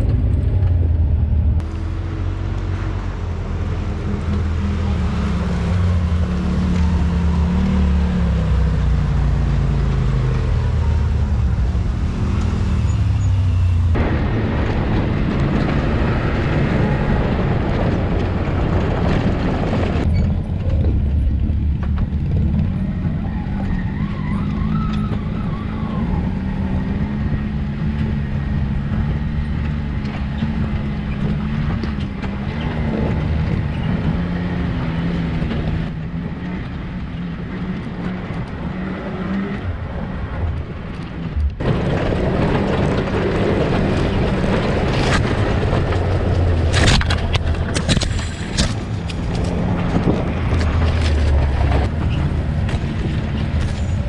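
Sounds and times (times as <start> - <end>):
off-road vehicle engine running: 0.0 - 54.0
knocks and scrapes: 41.4 - 54.0.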